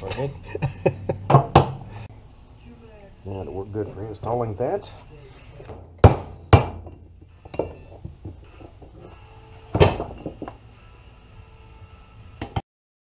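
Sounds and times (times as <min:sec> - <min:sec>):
hammer striking metal part: 0:05.7 - 0:07.9, 0:09.7 - 0:10.6.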